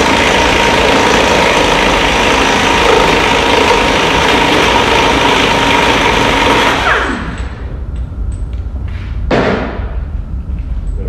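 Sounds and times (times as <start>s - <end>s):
pneumatic impact wrench: 0.0s - 7.6s.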